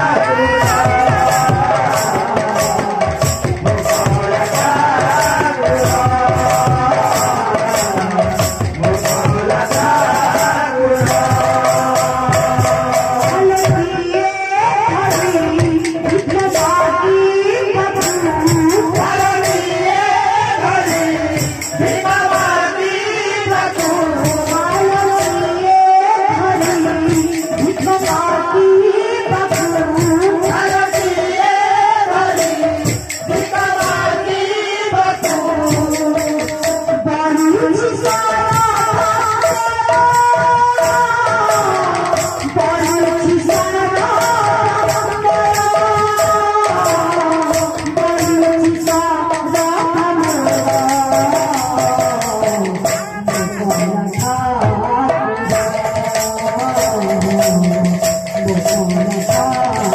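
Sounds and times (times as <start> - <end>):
barrel drums rhythm: 0.0 - 14.1, 29.3 - 59.9
woman singing: 0.0 - 59.9
jingling hand cymbals: 35.2 - 54.6.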